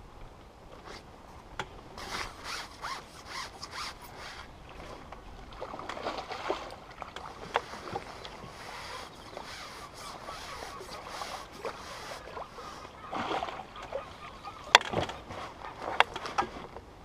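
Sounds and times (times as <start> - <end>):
fishing pole rubbing and scraping: 2.0 - 4.6, 7.3 - 13.0.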